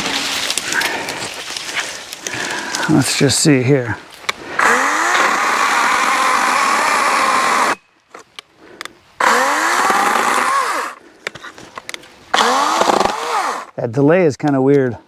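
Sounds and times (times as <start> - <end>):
electric chainsaw cutting wood: 4.6 - 7.8, 9.2 - 11.0, 12.3 - 13.7.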